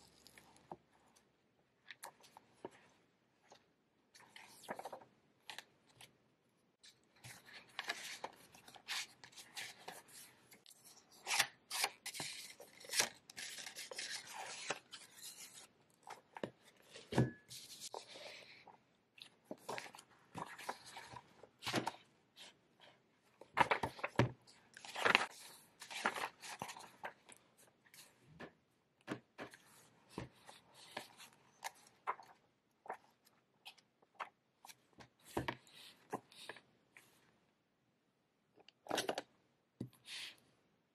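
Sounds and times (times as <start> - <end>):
paper pages rustling: 4.2 - 6.1, 6.9 - 36.6.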